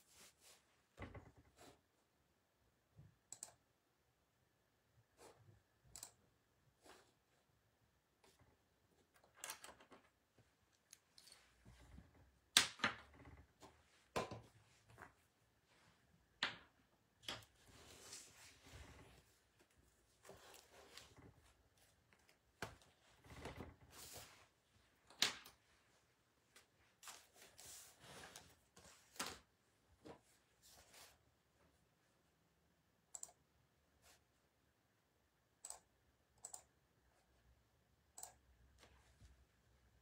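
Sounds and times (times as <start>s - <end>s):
faint handling rustles and clicks: 8.2s - 12.4s.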